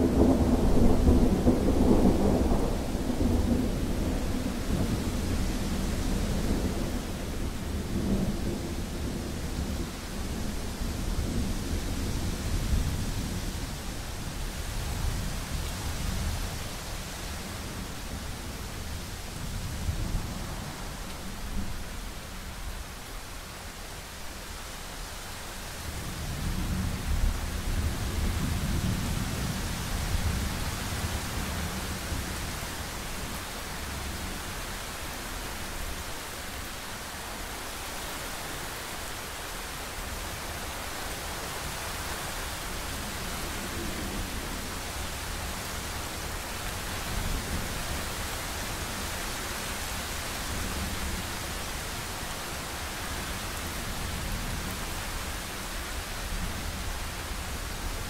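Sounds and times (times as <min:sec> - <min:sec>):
thunder rumbling: 0:00.0 - 0:13.5
heavy rain hissing: 0:00.0 - 0:58.0.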